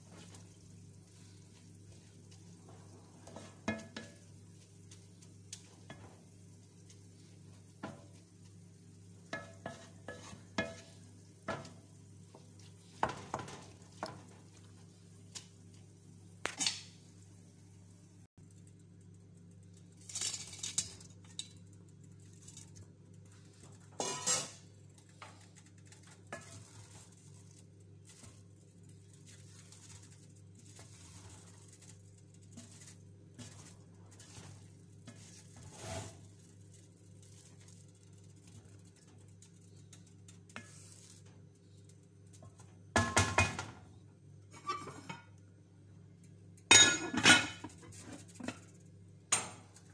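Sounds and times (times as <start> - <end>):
spoon knocking metal pot: 3.6 - 4.2
spoon scraping rice in pot: 9.3 - 11.7, 24.0 - 24.7, 26.3 - 27.1, 32.6 - 36.3.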